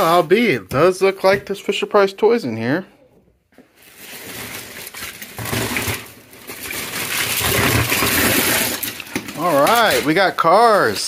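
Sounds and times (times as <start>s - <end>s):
plastic bag rustling: 0.0s - 1.4s, 3.5s - 11.0s
toy cars clattering onto cardboard: 6.9s - 10.1s.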